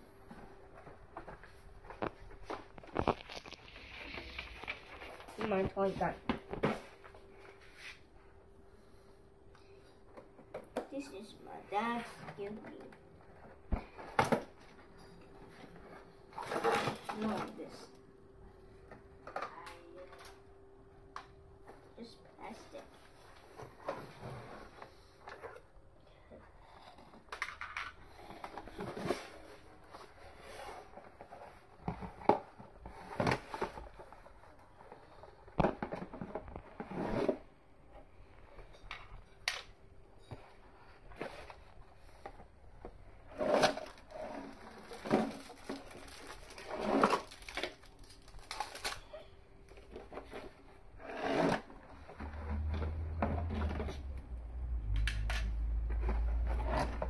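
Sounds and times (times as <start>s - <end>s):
packaging rustling: 0.6s - 5.8s, 43.3s - 50.4s.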